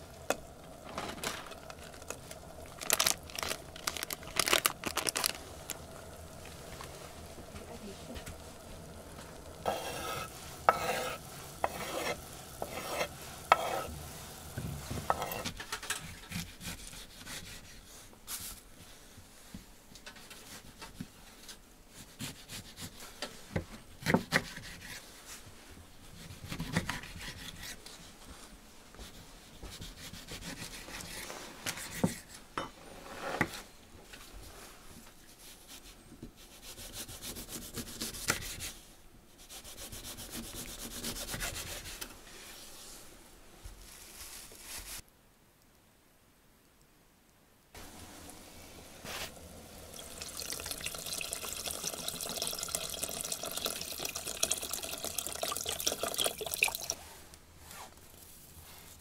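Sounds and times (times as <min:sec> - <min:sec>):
knife rasping through peel: 0:09.6 - 0:14.0, 0:15.1 - 0:15.5
knife slicing fruit on board: 0:09.7 - 0:13.9.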